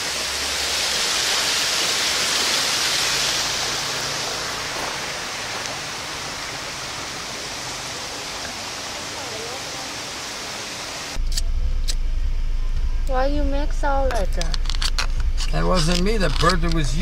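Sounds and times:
steady rushing hiss: 0.0 - 11.2.

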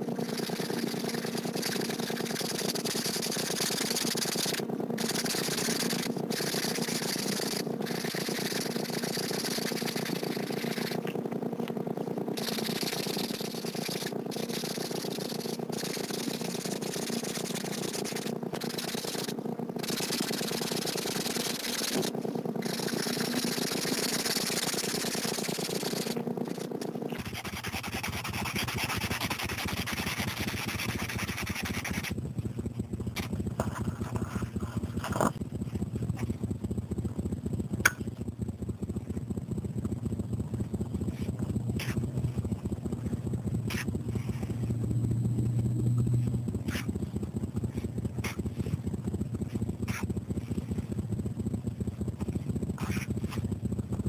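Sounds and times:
marker scratching on paper: 0.2 - 11.2, 12.4 - 32.1, 43.7 - 44.3, 46.7 - 46.9, 47.7 - 48.4, 52.8 - 53.4.

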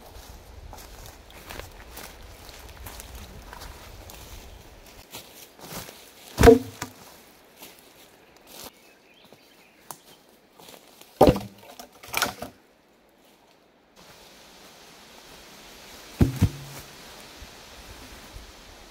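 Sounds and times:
wooden logs thudding onto pile: 6.4 - 7.1, 11.2 - 12.5, 16.2 - 16.9.

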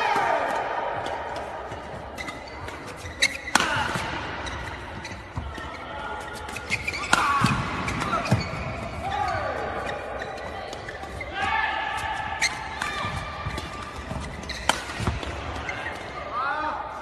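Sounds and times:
rackets striking shuttlecock: 12.4 - 15.5.

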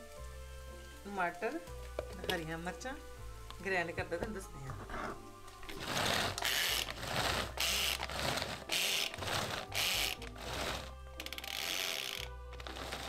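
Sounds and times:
pull-cord food chopper whirring: 5.7 - 13.0.

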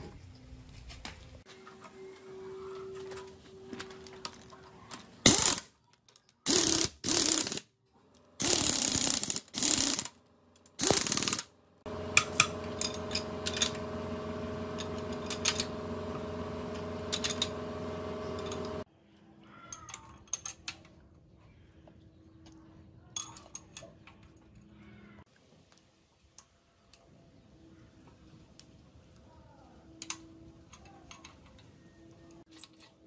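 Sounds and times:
socket ratchet wrench clicking: 10.8 - 11.4
multi-tone steady hum: 11.9 - 18.9.

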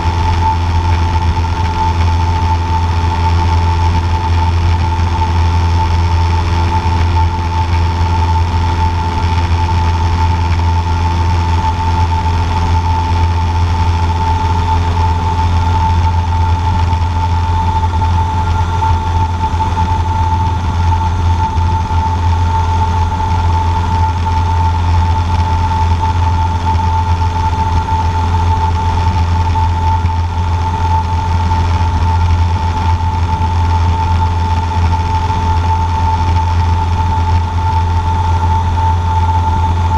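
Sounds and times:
airplane engine and propeller droning: 0.0 - 39.9.

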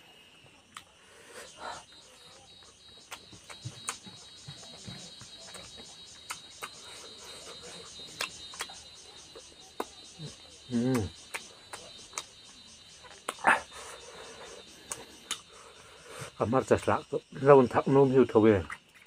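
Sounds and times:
cricket chirping: 0.0 - 19.0
mouth smacking and chewing: 2.6 - 12.4, 13.0 - 15.6
person humming: 10.7 - 11.1.

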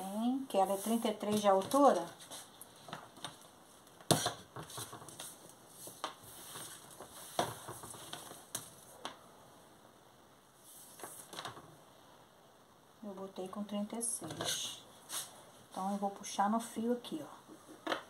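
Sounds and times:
fabric rustling: 0.2 - 9.0, 14.3 - 16.1.

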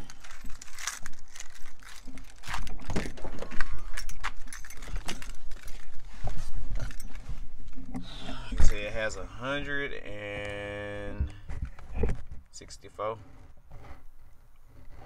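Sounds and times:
keys jangling: 3.7 - 5.8.

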